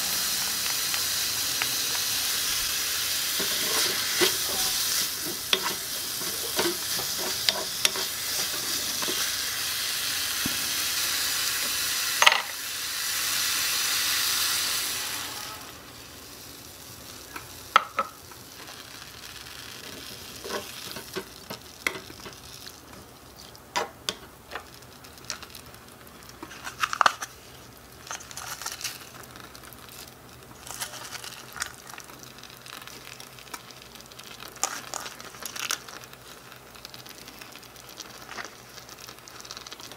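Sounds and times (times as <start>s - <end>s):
vegetables sizzling in wok: 0.0s - 39.9s
wooden spoon scraping pan: 3.4s - 9.3s, 20.4s - 21.3s.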